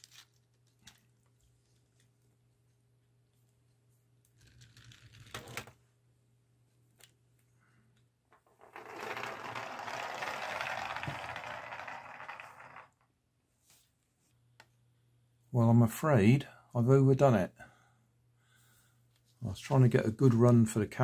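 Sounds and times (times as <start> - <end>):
plastic gear train rattling whir: 8.4 - 13.1.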